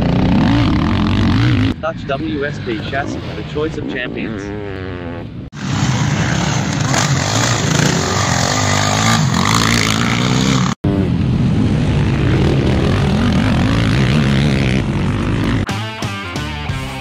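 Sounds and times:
quad engines revving: 0.0 - 1.8, 4.4 - 11.1, 11.8 - 15.7.

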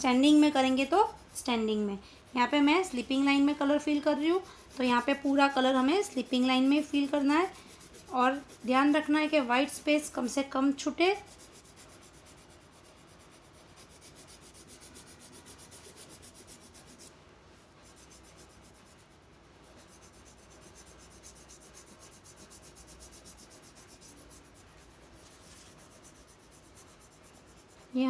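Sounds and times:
crayon scratching on paper: 0.0 - 17.1, 17.8 - 28.0.

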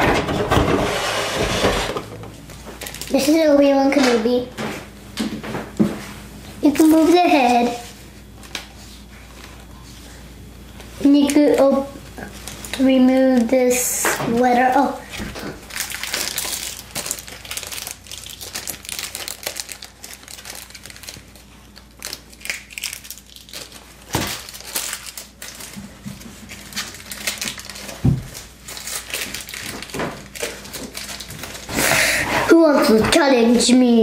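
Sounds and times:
plastic wrapping crinkling: 2.5 - 3.6, 11.2 - 13.7, 15.1 - 31.8.

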